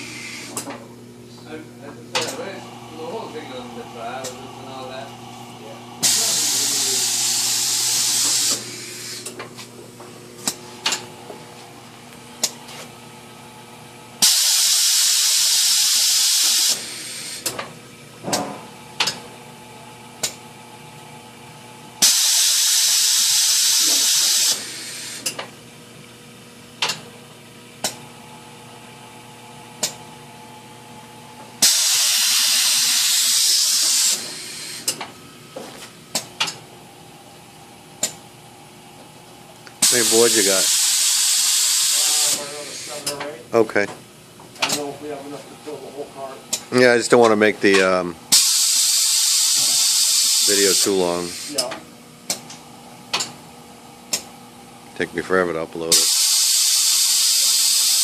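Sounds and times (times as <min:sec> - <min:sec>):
compressed air hissing: 0:00.0 - 0:00.6, 0:06.0 - 0:09.3, 0:14.2 - 0:17.5, 0:22.0 - 0:25.3, 0:31.6 - 0:35.0, 0:39.8 - 0:43.1, 0:48.3 - 0:51.7, 0:55.9 - 0:58.0
mechanism clicks and knocks: 0:36.1 - 0:36.6.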